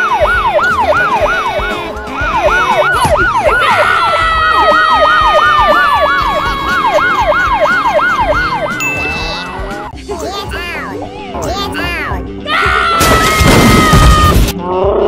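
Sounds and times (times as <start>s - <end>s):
police siren yelp: 0.0s - 9.8s
held siren tone sinking: 0.0s - 10.0s.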